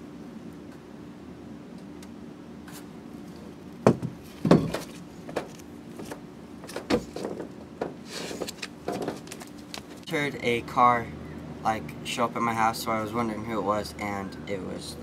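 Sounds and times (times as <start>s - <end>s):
steady low hum: 0.0s - 15.0s
footsteps on wooden ramp: 3.8s - 10.0s.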